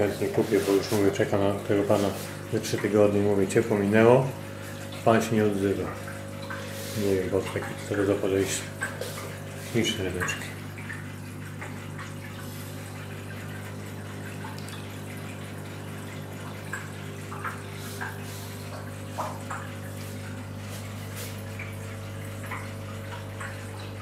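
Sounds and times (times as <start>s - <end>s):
water bubbling and trickling: 0.0s - 24.0s
small drips and bubble pops: 5.8s - 24.0s.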